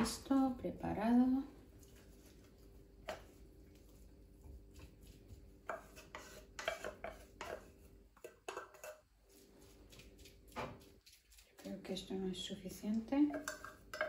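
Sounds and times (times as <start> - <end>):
utensil scraping a metal can: 5.7 - 7.6.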